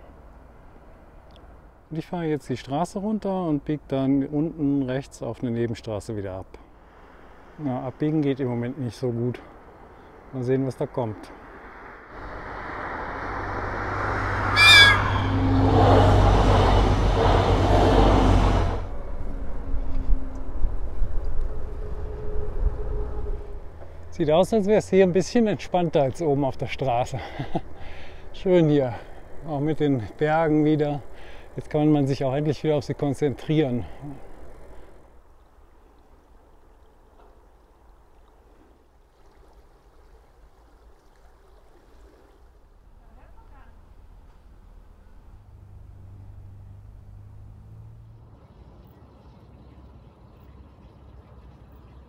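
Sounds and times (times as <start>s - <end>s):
water rushing in canal: 5.0s - 52.0s
train rushing past: 11.6s - 23.8s
train horn blast: 14.4s - 24.0s.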